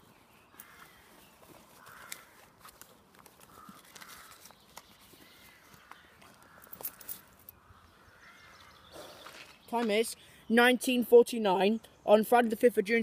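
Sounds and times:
distant bird calling: 0.0s - 2.7s, 3.4s - 10.6s.

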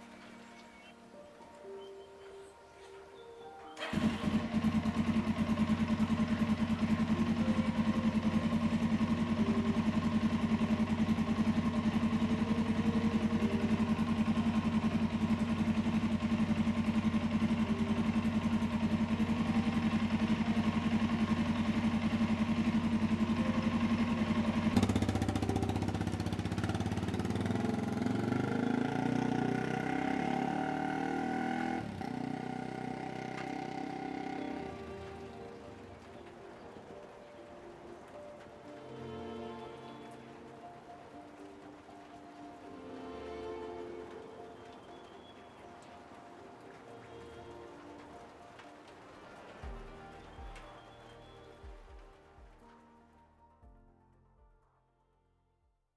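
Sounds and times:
motorcycle engine starting and idling: 3.6s - 48.8s
motorcycle revving and riding off: 3.8s - 35.6s.

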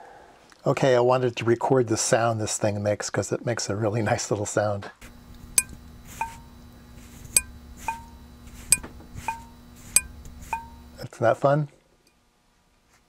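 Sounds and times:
soft click with ringing ping: 5.6s - 6.6s, 7.4s - 11.0s.

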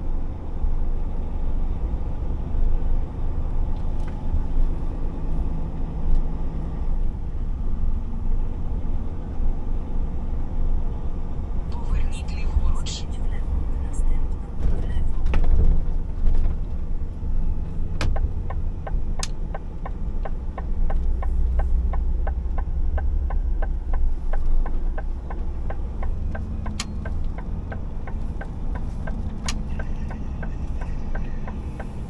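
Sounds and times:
diesel engine running low: 0.0s - 32.0s
turn signal ticking: 11.7s - 32.0s.

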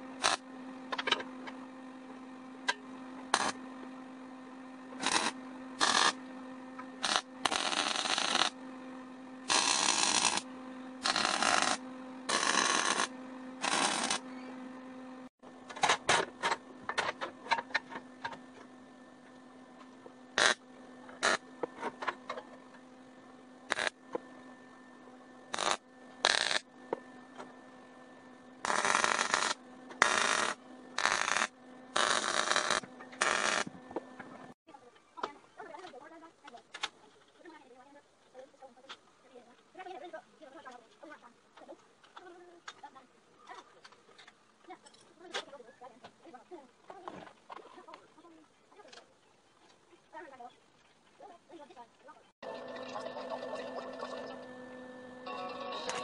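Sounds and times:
welding arc bursts: 0.0s - 0.4s, 3.3s - 3.6s, 5.0s - 6.2s, 7.0s - 8.6s, 9.4s - 10.4s, 11.0s - 14.2s, 20.4s - 20.6s, 21.2s - 21.4s, 23.7s - 24.0s, 25.5s - 26.6s, 28.6s - 33.7s
steady welder hum: 0.0s - 34.6s, 53.8s - 56.0s.

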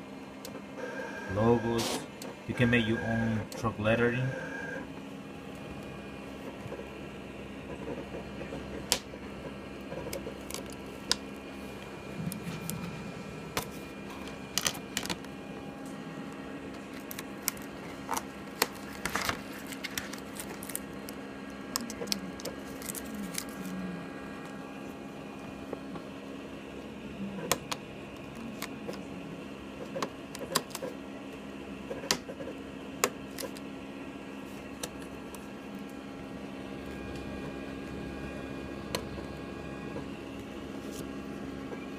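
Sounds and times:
steady hum: 0.0s - 41.9s
vinyl sheet clicks and crackles: 7.7s - 12.8s, 13.5s - 15.4s, 16.7s - 23.6s, 29.8s - 31.0s.

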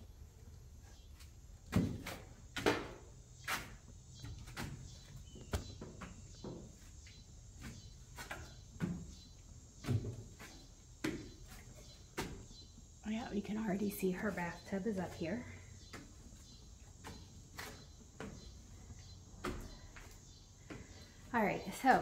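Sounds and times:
footsteps on wooden stairs: 14.2s - 21.8s.

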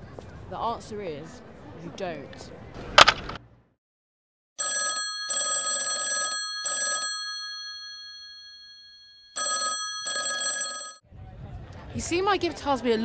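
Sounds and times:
telephone bell ringing: 4.6s - 11.0s.

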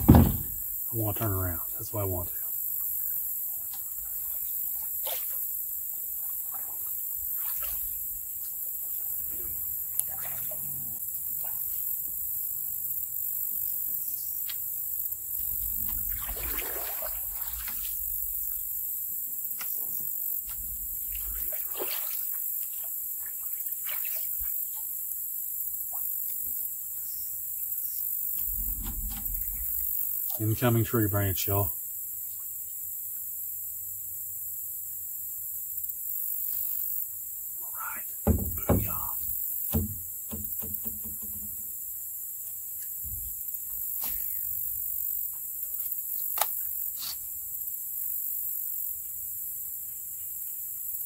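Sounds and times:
paddle strokes in water: 3.7s - 10.7s, 15.9s - 18.0s, 21.1s - 24.7s
light knock on canoe: 38.2s - 39.1s, 39.7s - 41.6s.

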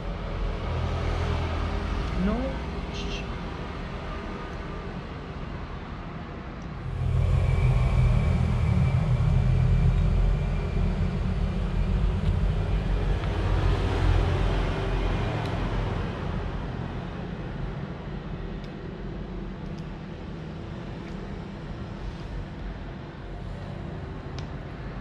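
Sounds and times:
vehicle engine running: 6.8s - 15.8s.

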